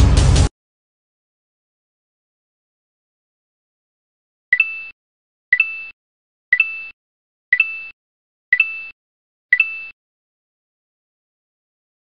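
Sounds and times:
short beeps with clicks: 4.5s - 10.0s.

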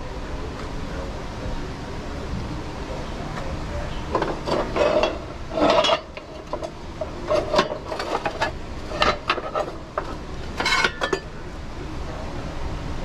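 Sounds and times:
cast iron pans clanking: 4.1s - 11.3s.

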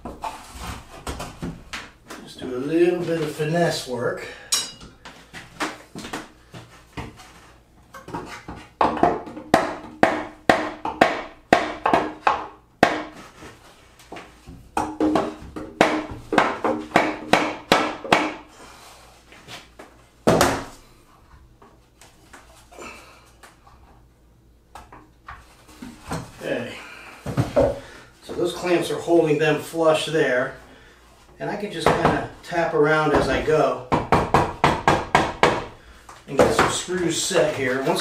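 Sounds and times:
mallet knocking on hollow wooden cabinet: 8.8s - 13.1s, 33.1s - 35.7s.

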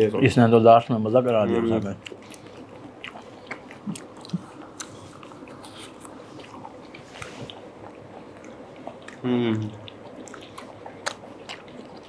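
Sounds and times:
chewing and wet mouth sounds: 1.2s - 12.0s.

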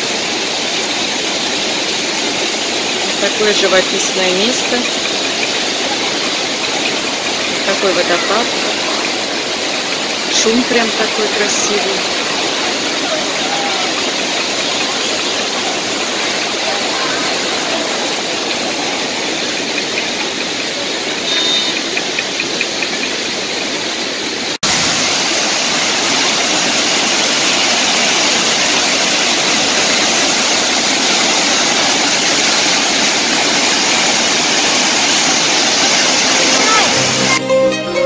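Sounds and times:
waterfall rushing over rocks: 0.0s - 37.4s.

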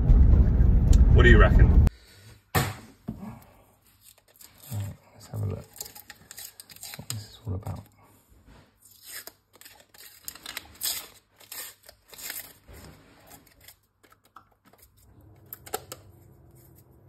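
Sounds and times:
paper stickers peeling off metal: 4.0s - 7.8s, 8.8s - 17.0s.

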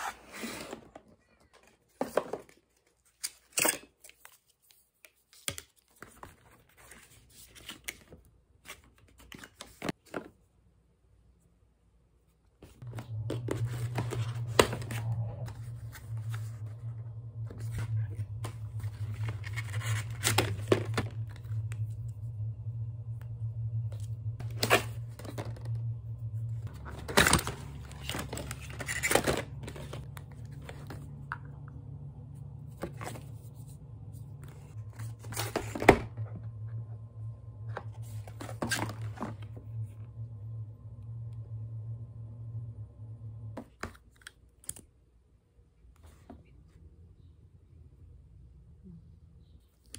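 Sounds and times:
steady low hum: 12.6s - 49.9s.

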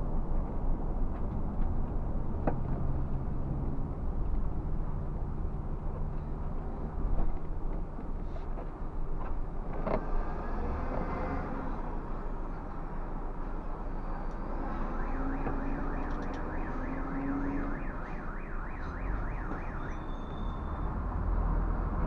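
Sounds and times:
engine and road rumble: 0.0s - 22.0s
electronic siren warbling: 13.8s - 20.9s
short high beep: 19.8s - 20.9s.

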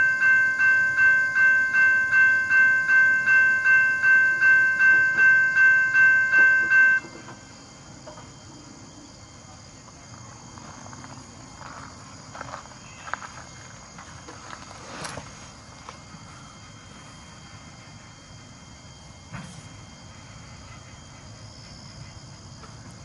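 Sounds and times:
railroad crossing bell ringing: 0.0s - 7.4s.

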